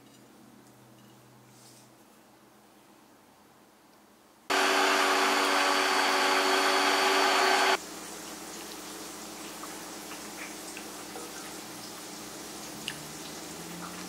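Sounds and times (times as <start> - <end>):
immersion blender running: 4.5 - 7.8.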